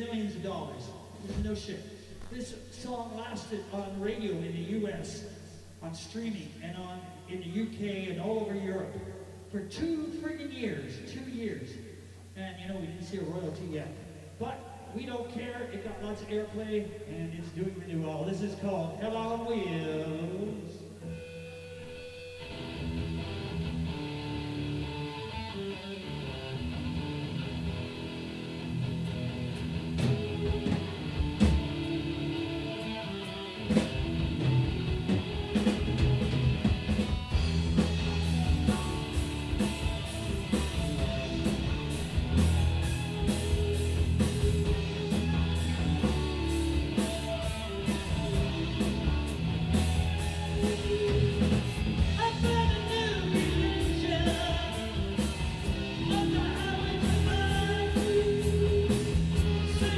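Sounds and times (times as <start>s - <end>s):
electric guitar: 19.7s - 59.9s
live rock band playing: 21.0s - 59.9s
drum kit: 27.8s - 59.9s.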